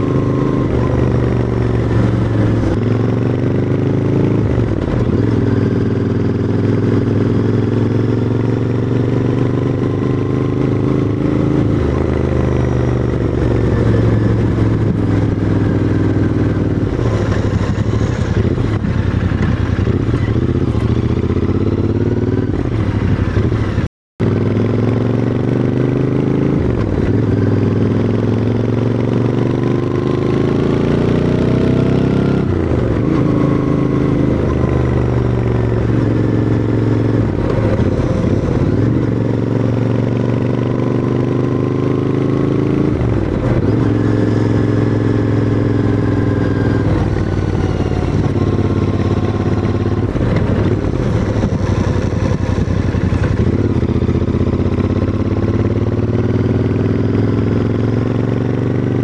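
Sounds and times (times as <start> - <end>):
motorcycle engine revving uphill: 0.0 - 59.0.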